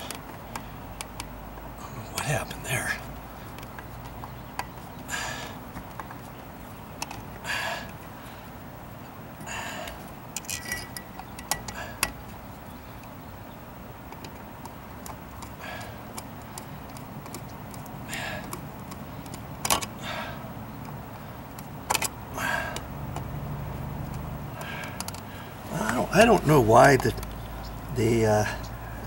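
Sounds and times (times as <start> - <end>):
steady low hum: 0.0 - 29.0
hand tools clicking and rattling: 3.5 - 8.0, 9.4 - 12.4, 14.1 - 29.0.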